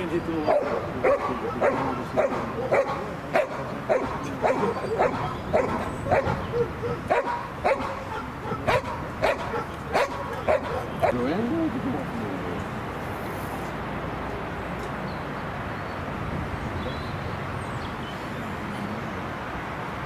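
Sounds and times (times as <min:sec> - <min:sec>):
dog barking: 0:00.5 - 0:11.3.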